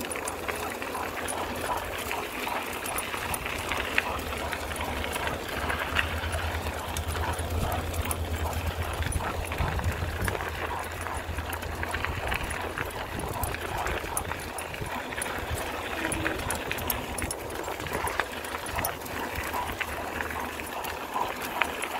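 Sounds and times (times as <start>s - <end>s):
dogs' running footfalls: 0.0s - 21.9s
wheels rolling over gravel: 0.0s - 21.9s
wind on microphone: 6.7s - 19.4s.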